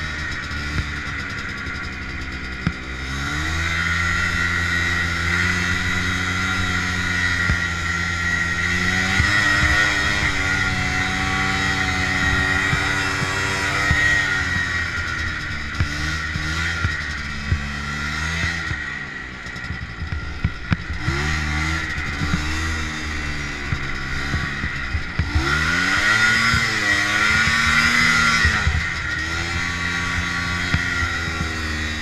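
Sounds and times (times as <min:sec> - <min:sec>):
snowmobile engine revving: 0:00.0 - 0:32.0
steady high whine: 0:00.0 - 0:32.0.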